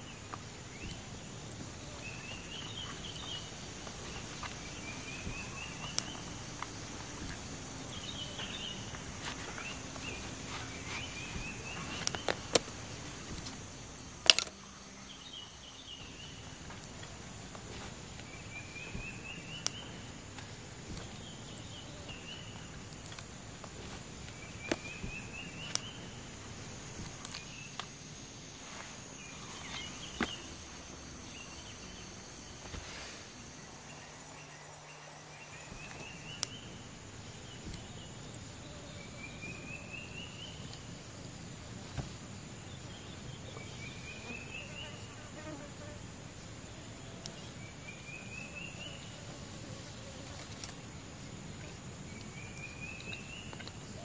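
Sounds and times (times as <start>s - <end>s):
high insect drone: 0.0s - 54.0s
camping gear clicks: 2.3s - 14.6s, 22.1s - 28.0s, 50.2s - 50.9s.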